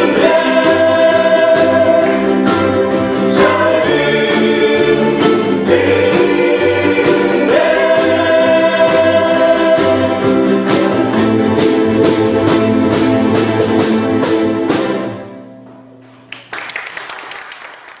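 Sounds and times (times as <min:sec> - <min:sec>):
voices singing: 0:00.0 - 0:12.8
ukulele ensemble strumming: 0:00.0 - 0:16.4.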